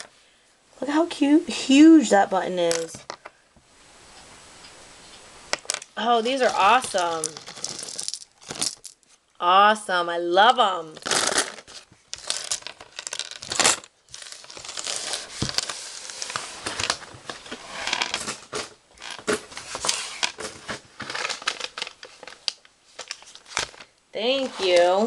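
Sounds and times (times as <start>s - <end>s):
packaging rustling and crinkling: 5.6s - 9.2s, 11.0s - 25.0s.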